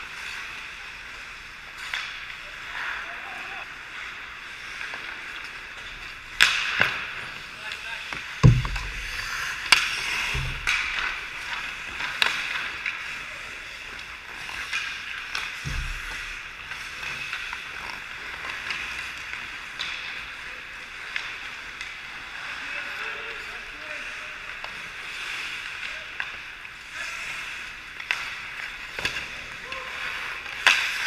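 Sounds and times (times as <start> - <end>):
hockey sticks and puck clacking: 0.0 - 31.0
skates scraping on ice: 0.0 - 31.0
heavy thuds: 8.4 - 9.4.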